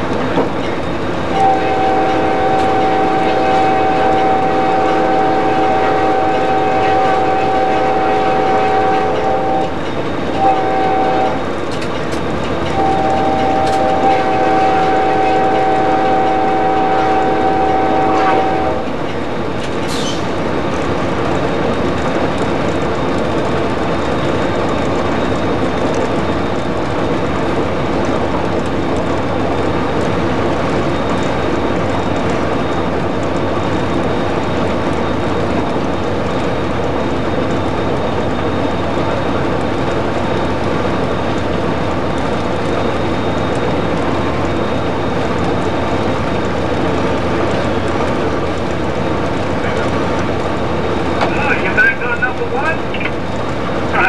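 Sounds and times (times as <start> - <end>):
locomotive cab running noise: 0.0 - 54.0
locomotive air horn: 1.3 - 9.8, 10.4 - 11.4, 12.7 - 18.9.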